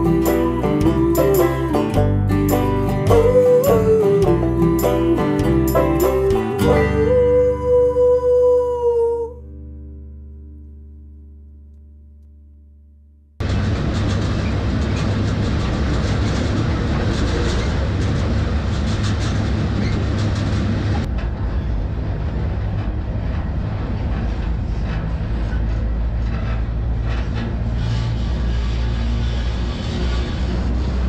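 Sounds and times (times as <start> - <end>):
freight train rumble: 0.0 - 9.4, 13.4 - 31.0
rattle and clatter of wheels: 13.4 - 31.0.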